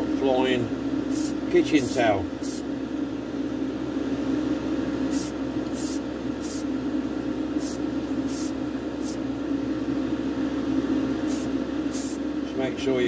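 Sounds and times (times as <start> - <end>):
extractor fan humming: 0.0 - 13.0
spray paint can hissing: 1.1 - 1.4, 2.4 - 2.6, 5.1 - 6.7, 7.6 - 9.2, 11.3 - 12.2.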